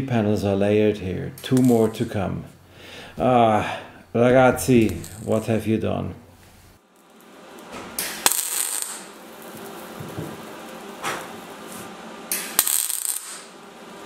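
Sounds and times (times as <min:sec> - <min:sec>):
welding arc crackling and hissing: 0:04.4 - 0:05.6, 0:06.4 - 0:14.0
arc striking snap: 0:08.0 - 0:09.2, 0:12.3 - 0:13.5.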